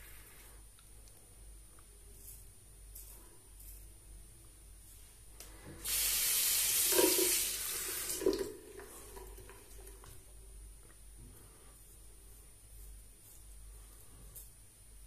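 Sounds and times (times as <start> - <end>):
tap running into sink: 6.7 - 10.2.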